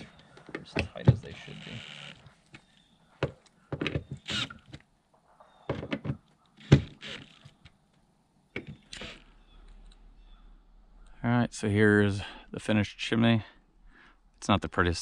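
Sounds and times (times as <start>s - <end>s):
cordless drill driving screws: 4.2s - 4.7s, 6.6s - 7.6s, 8.8s - 9.3s.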